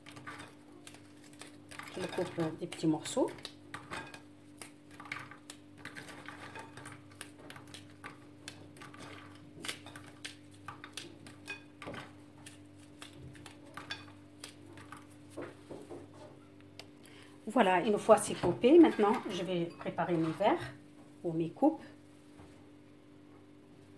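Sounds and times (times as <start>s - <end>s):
biscuits cracking: 0.0s - 15.4s.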